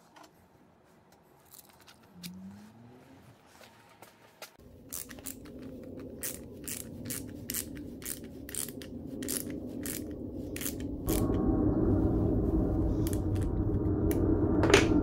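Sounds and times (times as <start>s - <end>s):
steady low hum: 4.6s - 15.0s
ratcheting wrench clicking: 4.9s - 10.9s.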